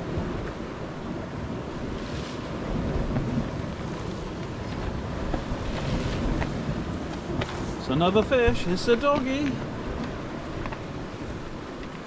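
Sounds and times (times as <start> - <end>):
sea waves on rocky shore: 0.0 - 12.0
wind rumbling on microphone: 0.0 - 12.0.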